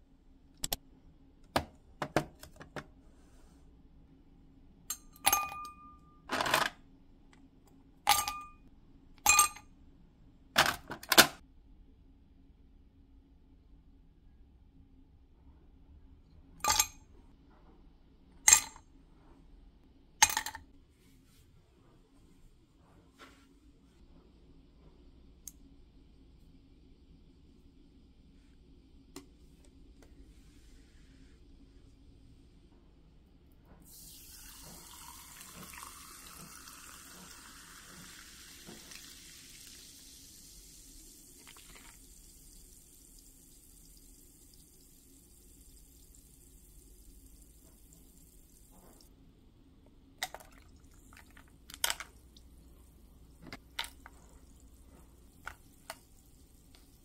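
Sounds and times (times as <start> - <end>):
drink fizzing: 33.8 - 44.9, 50.2 - 57.0
water poured over ice: 33.9 - 44.6.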